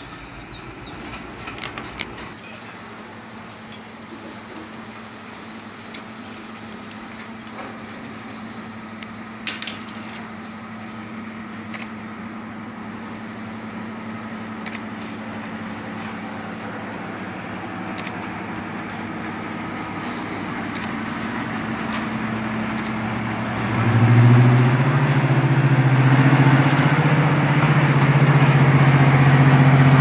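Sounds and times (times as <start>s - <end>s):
diesel locomotive engine hum: 0.0s - 30.0s
sharp clicks: 1.0s - 2.4s, 11.7s - 12.0s, 14.6s - 14.9s, 17.9s - 18.3s, 20.7s - 21.1s, 22.7s - 23.0s, 24.4s - 24.7s, 26.6s - 26.9s.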